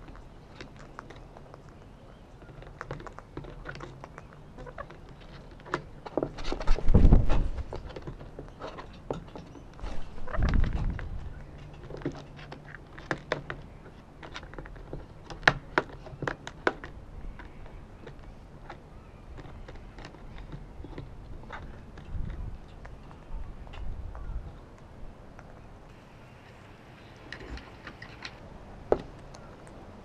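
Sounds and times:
beaks cracking seeds: 0.0 - 6.8
beaks tapping on board and box: 0.0 - 24.2.

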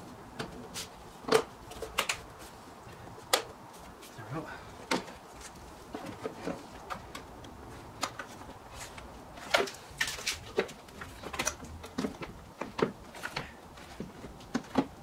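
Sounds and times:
hard plastic knocks and clicks: 10.5 - 15.0.

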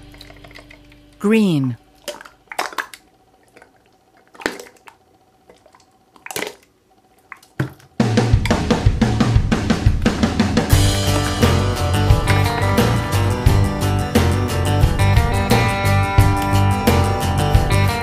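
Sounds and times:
slime squelching and popping: 2.0 - 7.9
background music with steady beat: 8.0 - 18.0.

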